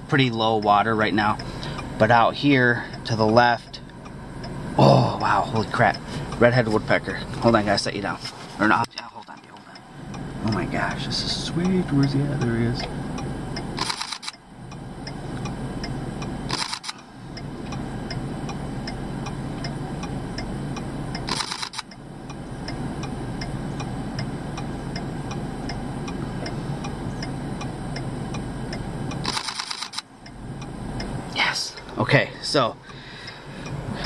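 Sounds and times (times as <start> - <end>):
faint regular ticking: 0.0 - 34.0
low hum inside car: 0.0 - 34.0
camera shutter rapid clicks: 13.8 - 14.4, 16.5 - 17.0, 21.3 - 21.9, 29.2 - 30.1.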